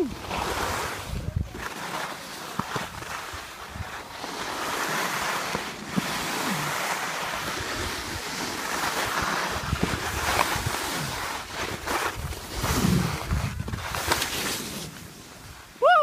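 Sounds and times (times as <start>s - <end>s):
skis scraping over snow: 0.0s - 15.8s
wind buffeting microphone: 9.5s - 14.0s.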